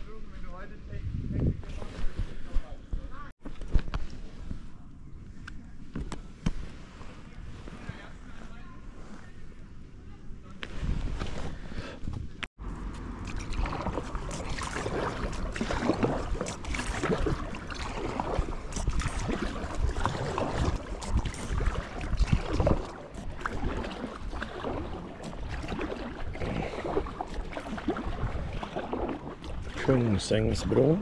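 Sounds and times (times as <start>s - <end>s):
paddle strokes splashing: 12.8s - 31.0s
water washing: 13.0s - 31.0s.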